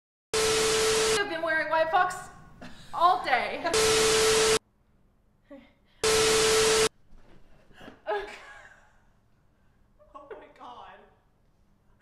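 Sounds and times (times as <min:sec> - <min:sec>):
tv static bursts: 0:00.4 - 0:01.2, 0:03.7 - 0:04.6, 0:06.0 - 0:06.9.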